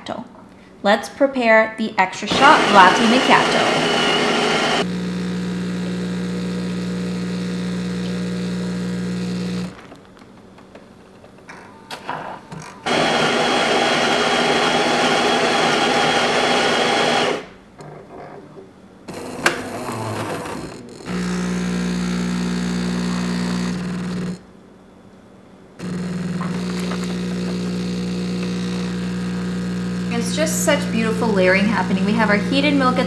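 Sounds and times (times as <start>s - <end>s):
coffee grinder running: 2.3s - 9.8s, 12.9s - 17.5s, 19.1s - 24.4s, 25.8s - 33.0s
pump humming: 19.2s - 24.4s, 25.8s - 33.0s.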